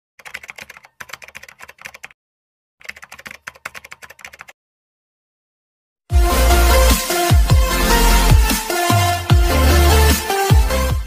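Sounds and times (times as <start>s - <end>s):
keyboard typing clicks: 0.2s - 2.2s, 2.8s - 4.6s
electronic dance music: 6.1s - 11.0s.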